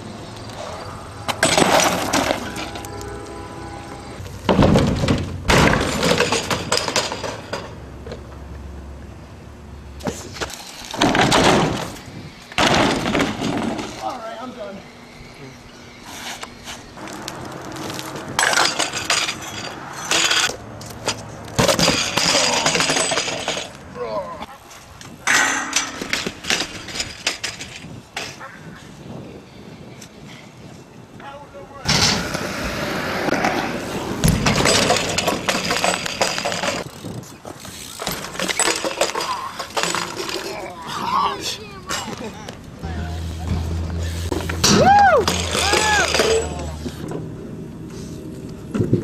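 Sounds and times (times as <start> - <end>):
bmx bike rattling on concrete: 0.6 - 3.0, 4.2 - 8.3, 10.2 - 14.5, 17.0 - 24.1, 25.1 - 28.6, 33.3 - 47.4
riders landing hard: 4.4 - 7.8, 10.9 - 14.1, 34.2 - 40.4.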